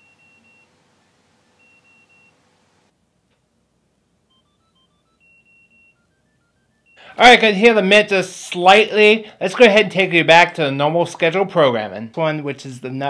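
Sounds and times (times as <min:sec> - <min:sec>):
faint electronic ringtone beeps: 0:00.0 - 0:02.4, 0:04.2 - 0:07.2.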